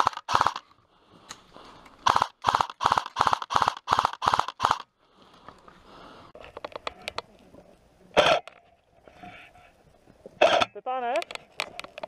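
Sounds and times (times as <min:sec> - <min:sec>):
airsoft rifle firing bursts: 0:00.0 - 0:00.6, 0:02.0 - 0:04.8.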